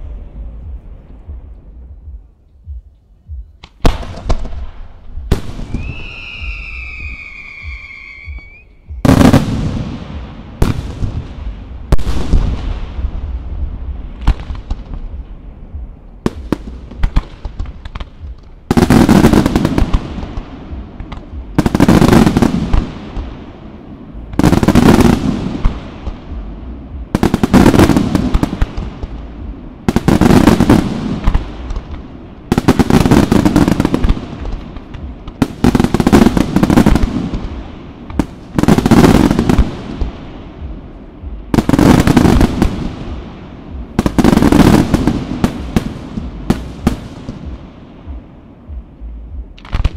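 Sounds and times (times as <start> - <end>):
fireworks bangs and crackles: 3.6 - 49.9
fireworks pops: 49.6 - 49.9.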